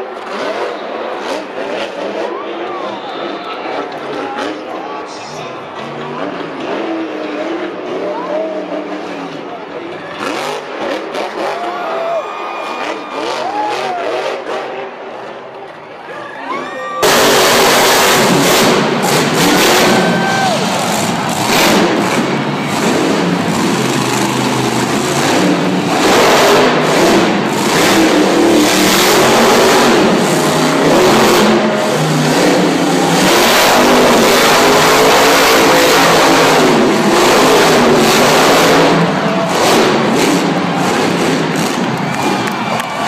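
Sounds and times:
truck engine revving: 5.5s - 11.7s, 17.0s - 43.0s.

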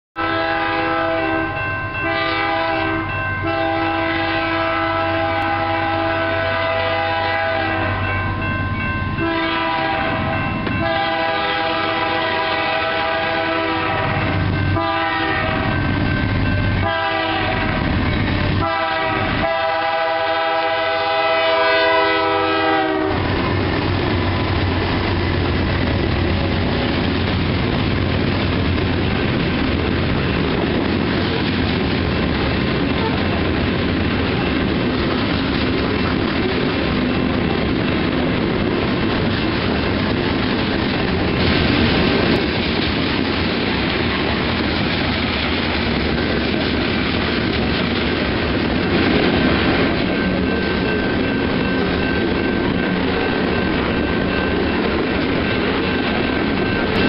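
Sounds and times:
locomotive air horn blasts: 0.2s - 8.2s, 9.2s - 15.9s, 16.8s - 23.6s
train cars rumbling past: 0.2s - 57.0s.

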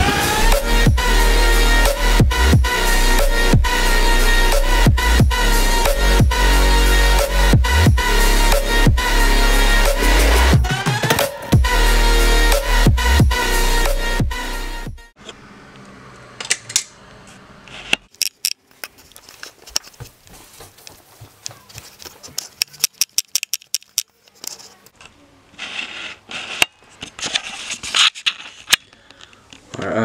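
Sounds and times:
electronic music: 0.0s - 15.1s
camera handling clicks and rustles: 21.9s - 25.1s.

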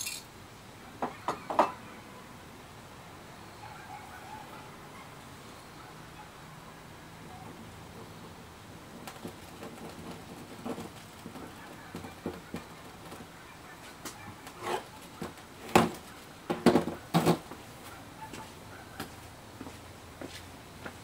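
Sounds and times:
sharp knocks and clatters: 15.2s - 17.6s.

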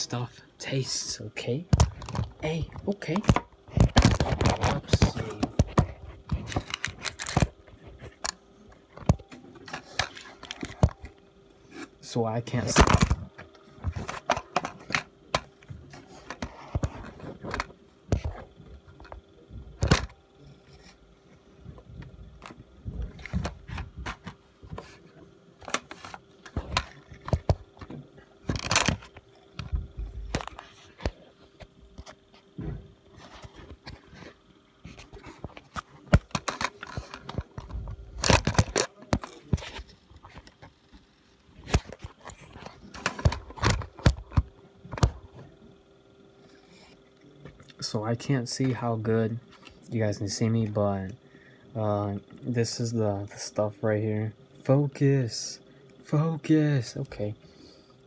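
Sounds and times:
faint steady hum: 0.0s - 58.0s
plastic packaging rustling: 3.6s - 8.1s.

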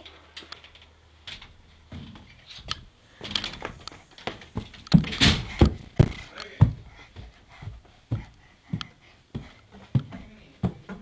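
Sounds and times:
heavy thumps: 3.2s - 11.0s.

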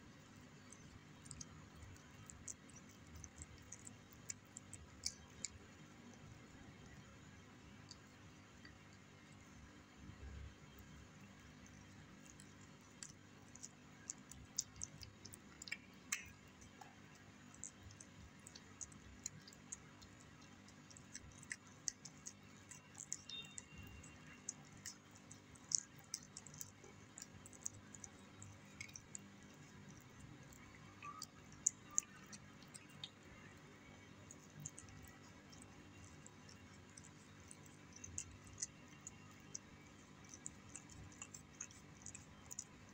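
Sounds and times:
cat eating wet food: 0.0s - 42.9s.

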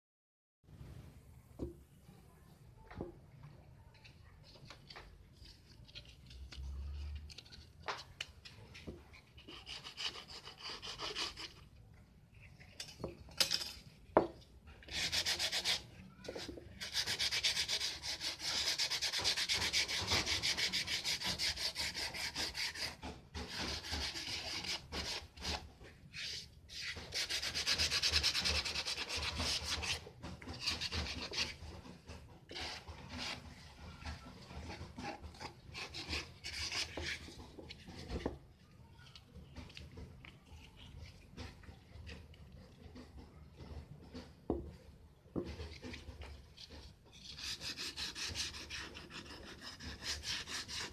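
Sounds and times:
wood scraping on sandpaper: 8.5s - 11.6s, 14.8s - 38.4s, 45.4s - 50.9s.

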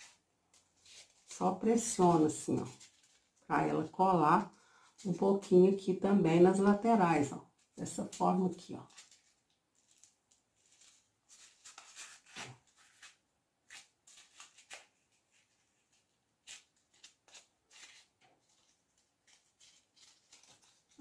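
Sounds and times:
faint rustles of hands handling foam: 0.0s - 1.4s, 8.8s - 21.0s.

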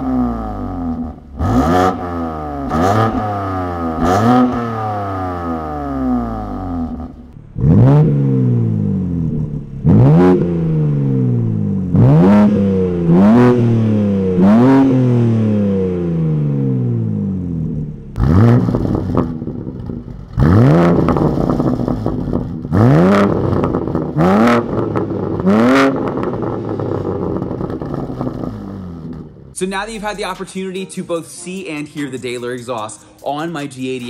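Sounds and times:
car engine revving: 0.0s - 29.6s.

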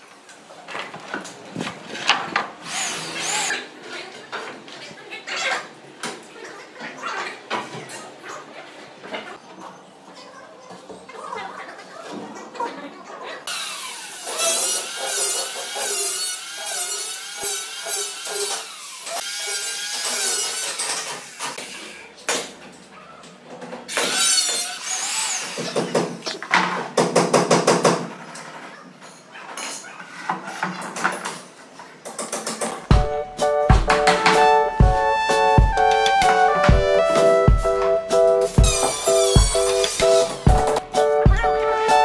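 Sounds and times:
power tool motor whining: 2.6s - 3.5s.

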